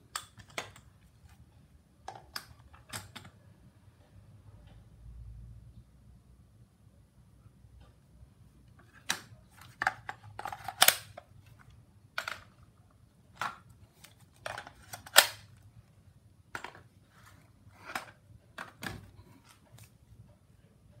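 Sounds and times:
plastic battery pack clicking and knocking: 0:16.5 - 0:16.9.

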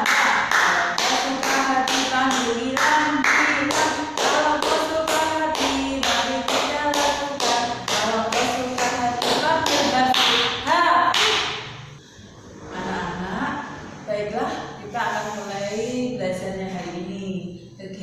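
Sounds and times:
woman singing: 0:00.0 - 0:11.2.

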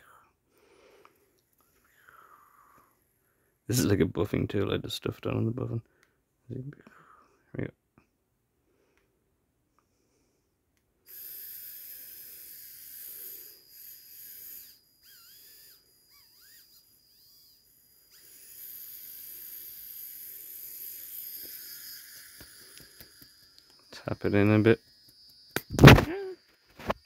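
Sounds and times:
dental drill whining: 0:11.1 - 0:27.0.

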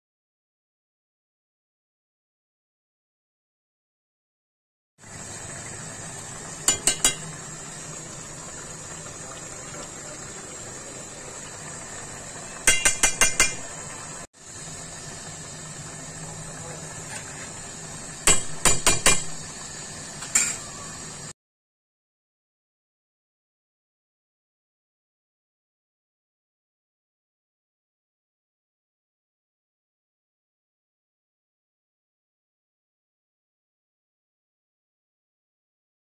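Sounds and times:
metal ladle knocking on pot: 0:06.7 - 0:07.4, 0:12.6 - 0:13.7, 0:18.2 - 0:19.4.

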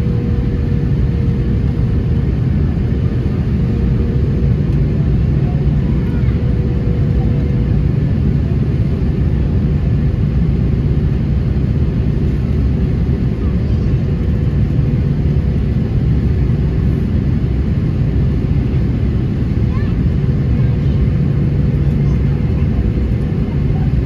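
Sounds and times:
aircraft cabin engine rumble: 0:00.0 - 0:24.0
airflow over fuselage: 0:00.0 - 0:24.0.

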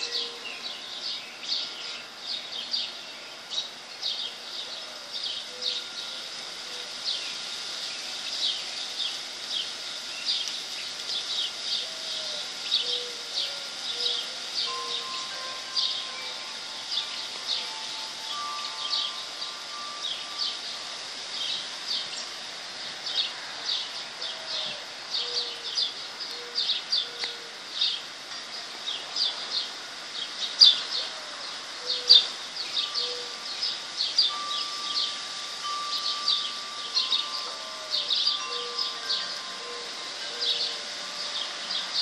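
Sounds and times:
bird cooing call: 0:00.0 - 0:01.0, 0:04.3 - 0:07.4, 0:11.2 - 0:22.2, 0:23.1 - 0:28.0, 0:30.6 - 0:42.0
long ringing tone: 0:00.0 - 0:29.6, 0:30.8 - 0:42.0
birds chirping and singing: 0:00.0 - 0:42.0.

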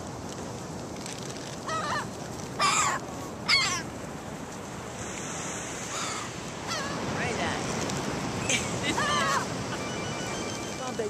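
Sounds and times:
gulls calling: 0:01.7 - 0:03.9, 0:08.4 - 0:11.0
surf hissing: 0:04.0 - 0:11.0.

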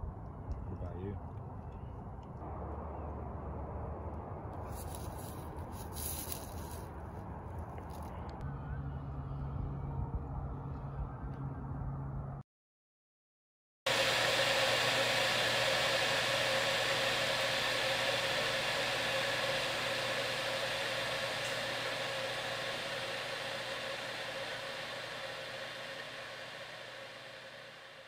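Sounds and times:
mechanical hum with hiss: 0:04.7 - 0:06.9, 0:13.9 - 0:28.0.

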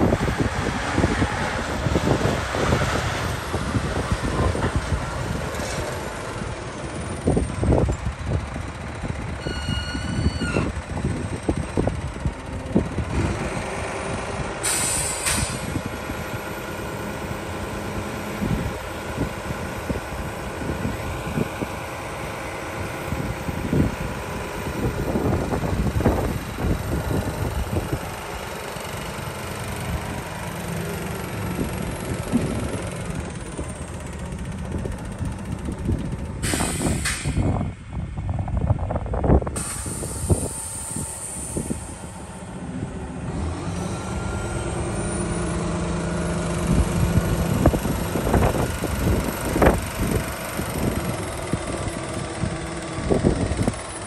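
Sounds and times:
dump truck diesel engine: 0:00.0 - 0:54.0
high squeal: 0:09.4 - 0:10.8
air hiss: 0:14.6 - 0:15.8, 0:36.4 - 0:37.4, 0:39.6 - 0:42.2.

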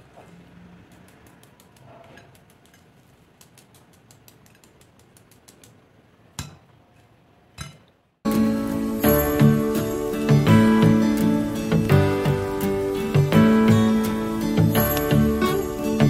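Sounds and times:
crispy food crackling clicks: 0:00.9 - 0:05.8.

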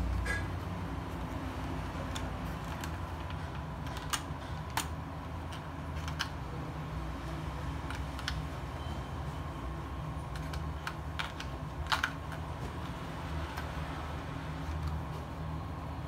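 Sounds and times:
pens clicking into plastic case: 0:02.0 - 0:06.4, 0:07.8 - 0:08.5, 0:10.3 - 0:13.7.

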